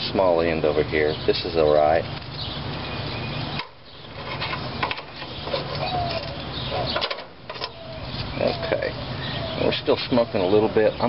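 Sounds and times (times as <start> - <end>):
background hiss and hum: 0.0 - 11.0
tongs scraping roasting pan: 3.4 - 8.4.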